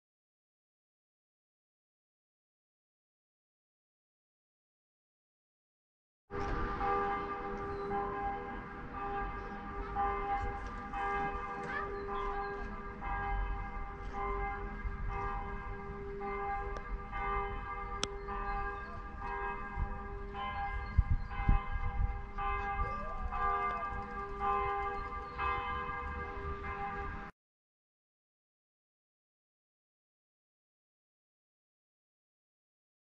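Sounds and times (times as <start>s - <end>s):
church bells ringing: 6.3s - 27.3s.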